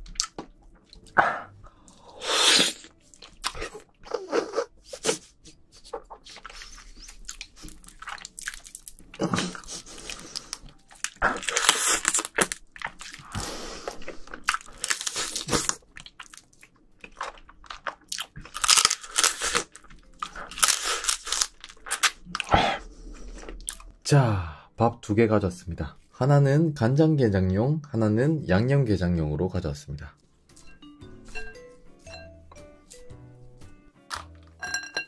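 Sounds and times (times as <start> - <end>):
chewing: 2.8 - 4.3, 5.8 - 23.9
crunching: 6.4 - 22.5.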